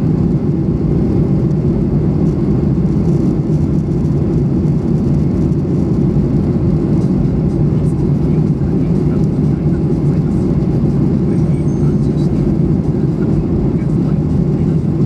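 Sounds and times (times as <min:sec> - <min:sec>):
airplane cabin engine rumble: 0:00.0 - 0:15.0.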